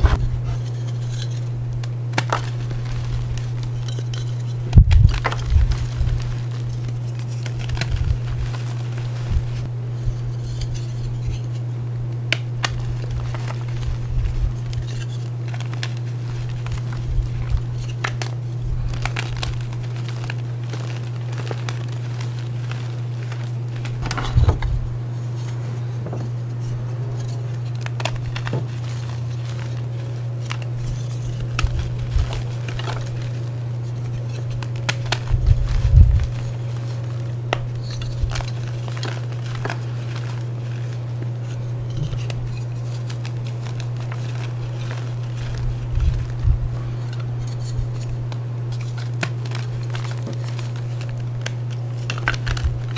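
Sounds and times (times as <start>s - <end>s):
chalk crushed by hand: 0.0s - 9.7s, 12.2s - 52.9s
steady low hum: 0.0s - 52.9s.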